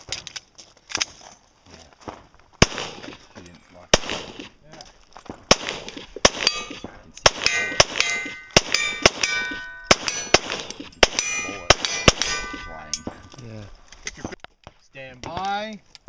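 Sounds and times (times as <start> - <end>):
handgun shots: 4.0 - 4.5, 5.5 - 13.3
steel plates ringing: 6.4 - 13.5.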